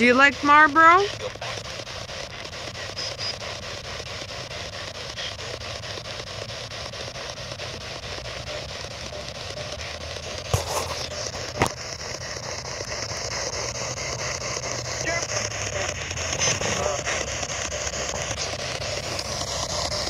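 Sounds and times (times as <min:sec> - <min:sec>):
chopped radio static: 0:08.6 - 0:20.0.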